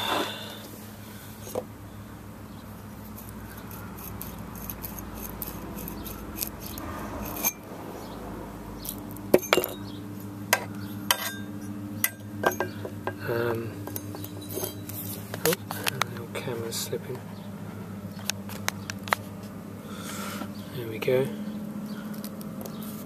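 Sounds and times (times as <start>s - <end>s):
metal parts clicking and clinking: 13.9s - 15.0s.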